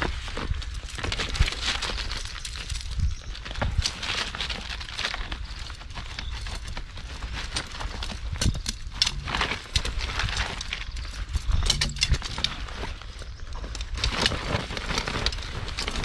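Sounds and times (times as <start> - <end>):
net mesh rustling: 0.0 - 16.0
metal hoops clinking: 8.4 - 12.9.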